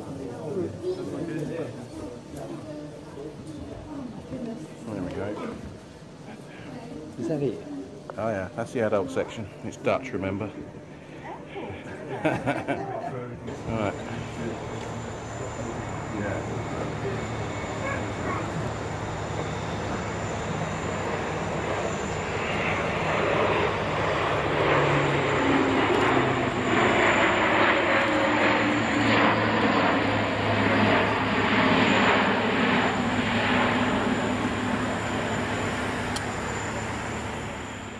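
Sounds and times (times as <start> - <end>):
plane engine roar: 13.4 - 37.9.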